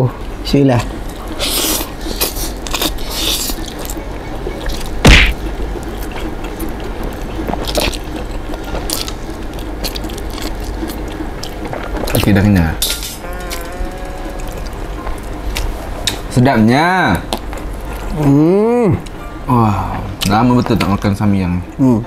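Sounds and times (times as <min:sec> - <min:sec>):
people slurping noodles: 0:13.2 - 0:15.0.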